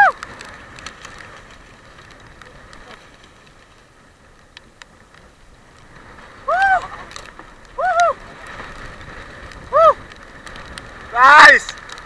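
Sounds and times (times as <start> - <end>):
sea and wind noise: 0.0 - 12.0
person whooping: 6.5 - 7.0, 7.8 - 8.2, 9.7 - 10.0.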